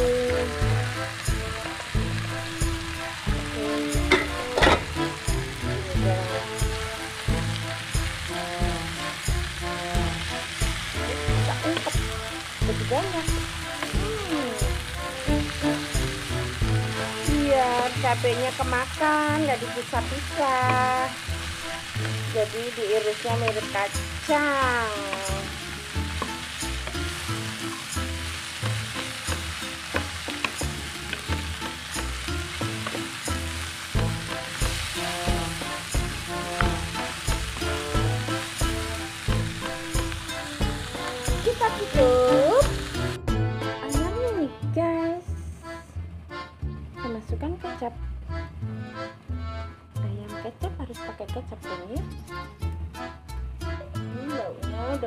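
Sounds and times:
vegetables sizzling in a pan: 0.0s - 43.3s
background music with steady beat: 0.0s - 55.0s.

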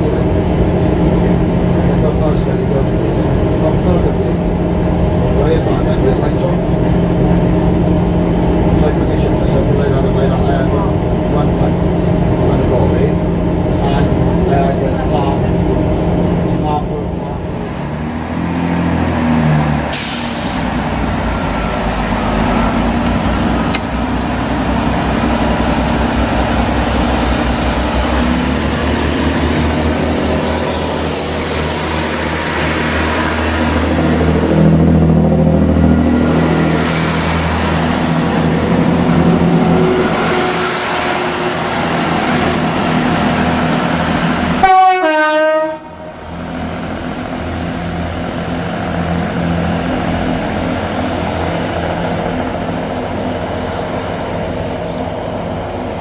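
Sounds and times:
diesel train drone and rumble: 0.0s - 56.0s
passing train noise: 0.0s - 56.0s
train horn blast pitch dipping: 39.1s - 42.7s, 44.6s - 46.3s.

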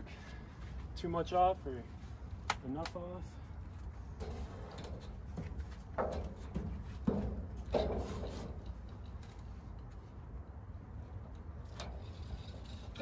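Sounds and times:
wood and metal sheet scraping: 4.2s - 10.1s, 11.6s - 13.0s.

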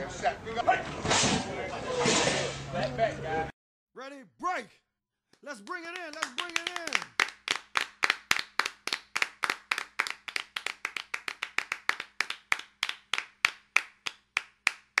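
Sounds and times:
hands clapping: 5.3s - 15.0s.

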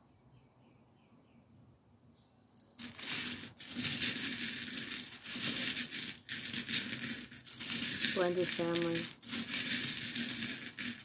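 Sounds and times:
metal charms jingling in glass dish: 2.6s - 11.0s.

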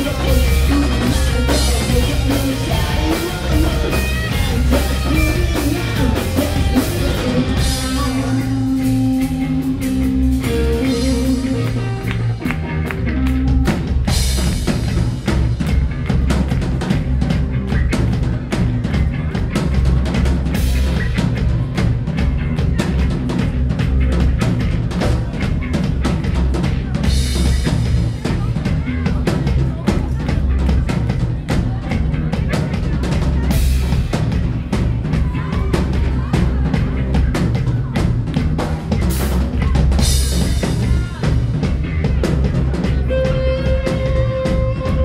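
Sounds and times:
live rock band playing: 0.0s - 45.0s.

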